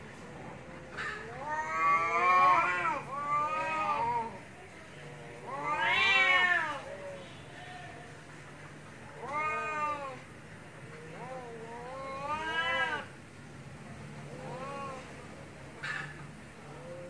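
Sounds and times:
cats yowling: 0:00.9 - 0:04.4, 0:05.4 - 0:07.1, 0:09.2 - 0:10.2, 0:11.0 - 0:13.1, 0:14.3 - 0:15.1.

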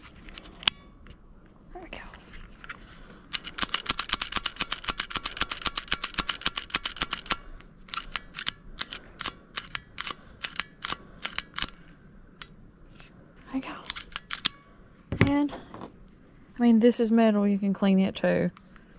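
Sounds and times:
metallic clicking: 0:03.3 - 0:11.8.

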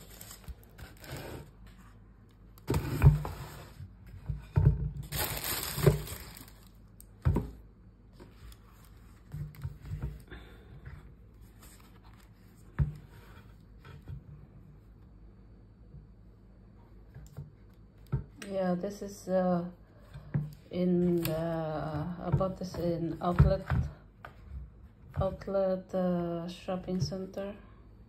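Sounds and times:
shoes and tissue paper rustling: 0:05.1 - 0:06.8.

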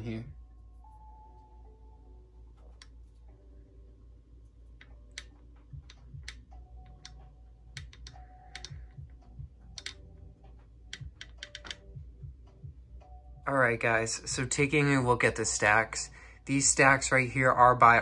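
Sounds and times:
steady low hum: 0:00.0 - 0:18.0
light clicks and taps: 0:04.8 - 0:11.9.

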